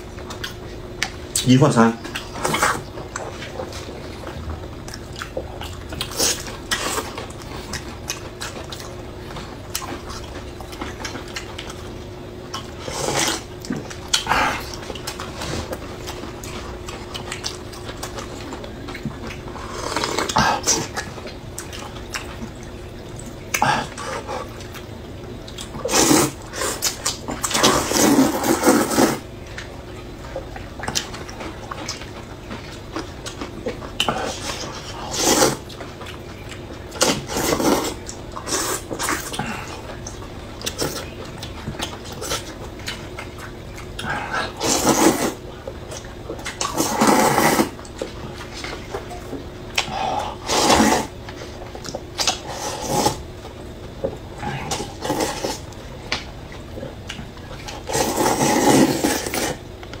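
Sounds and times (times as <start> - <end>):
people slurping noodles: 12.8 - 13.5, 19.6 - 21.0, 25.8 - 29.2, 34.0 - 35.7, 37.0 - 39.9, 44.0 - 45.4, 46.6 - 47.8, 49.8 - 51.1, 52.2 - 53.2, 54.4 - 55.7, 57.7 - 59.6.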